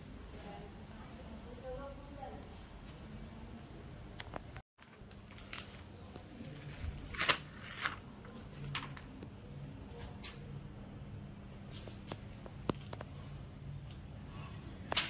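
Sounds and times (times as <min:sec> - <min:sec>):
faint steady hum: 0:00.0 - 0:15.0
newspaper and tape crinkling: 0:04.8 - 0:09.2.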